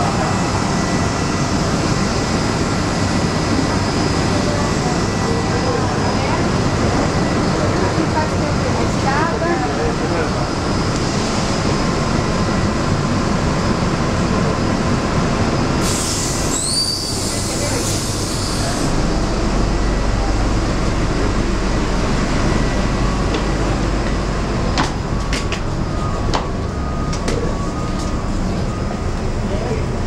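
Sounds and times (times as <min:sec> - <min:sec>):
bus engine rumble: 0:00.0 - 0:30.0
air hissing: 0:15.8 - 0:18.9
low hum: 0:18.3 - 0:30.0.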